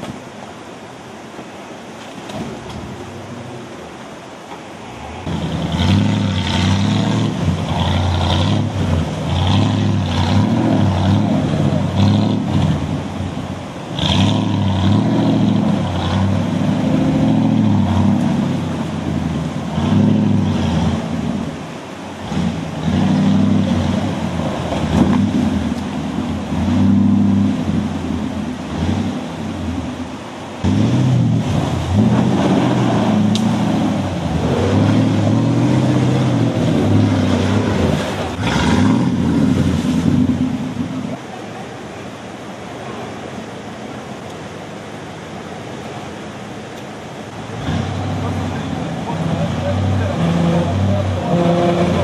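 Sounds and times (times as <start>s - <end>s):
off-road vehicle engine revving: 5.0s - 41.2s, 47.2s - 52.0s.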